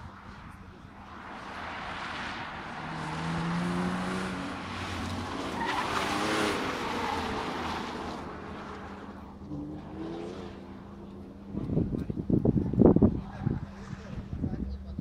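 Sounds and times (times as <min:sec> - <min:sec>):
car engine running hard: 0:00.0 - 0:15.0
tyre squeal: 0:05.4 - 0:07.5.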